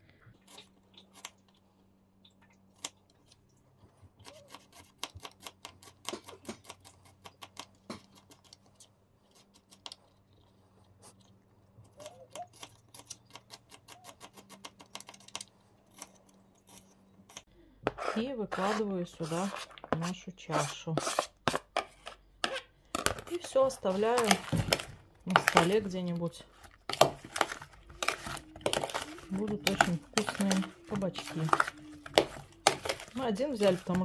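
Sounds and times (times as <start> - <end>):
knife chopping on plastic board: 26.9 - 34.0.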